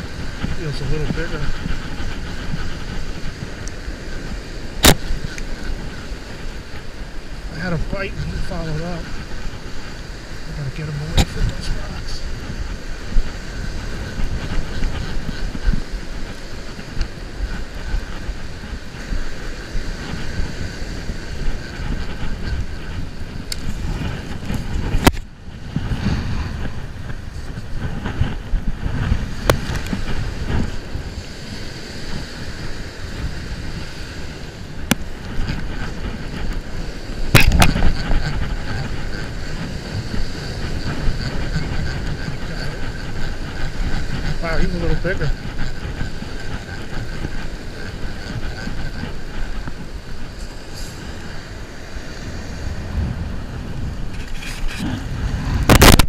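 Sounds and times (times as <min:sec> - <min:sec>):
surf breaking: 0:00.0 - 0:56.0
wind buffeting microphone: 0:00.0 - 0:56.0.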